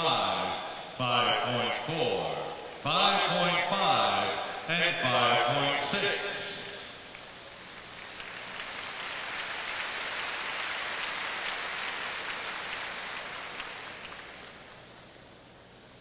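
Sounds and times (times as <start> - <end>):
crowd applauding: 6.7 - 15.2.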